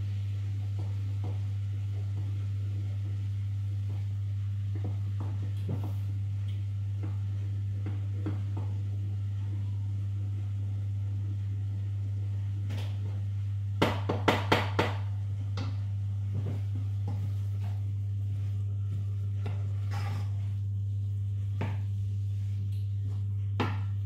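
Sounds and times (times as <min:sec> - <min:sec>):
low hum: 0:00.0 - 0:24.0
wooden spoon knocking on saucepan: 0:13.8 - 0:15.8, 0:23.6 - 0:24.0
spoon scraping while stirring: 0:19.8 - 0:20.5.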